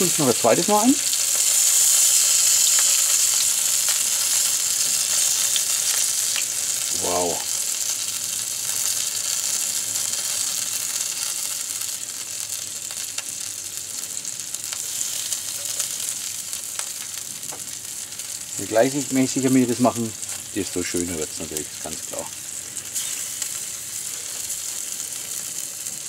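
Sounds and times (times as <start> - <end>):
chicken sizzling on a grill: 0.0 - 26.0.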